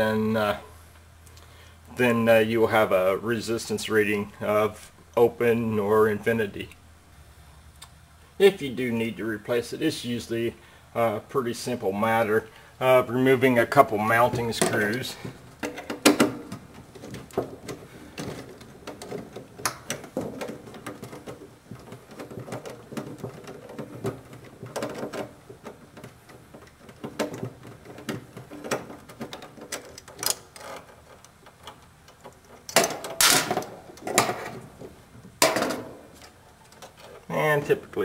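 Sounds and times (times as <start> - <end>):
small clicks and scrapes: 16.8 - 33.3.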